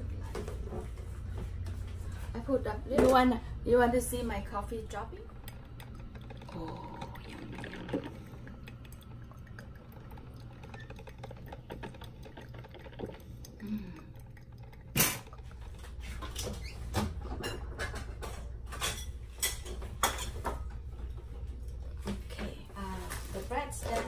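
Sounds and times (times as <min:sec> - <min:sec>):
coffee maker dripping: 0:03.4 - 0:17.9
plastic bag rustling: 0:22.7 - 0:24.0.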